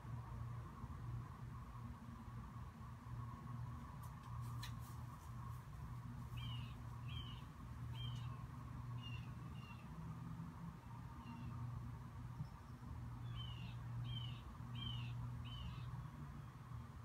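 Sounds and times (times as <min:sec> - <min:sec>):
steady low hum: 0:00.0 - 0:17.0
bird chirping: 0:06.3 - 0:09.9, 0:11.2 - 0:11.6, 0:12.4 - 0:16.6.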